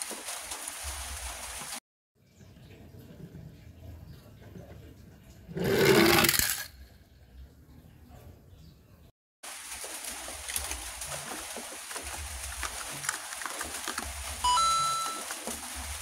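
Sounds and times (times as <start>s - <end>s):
plastic packaging crinkling and clicking: 12.0s - 14.4s.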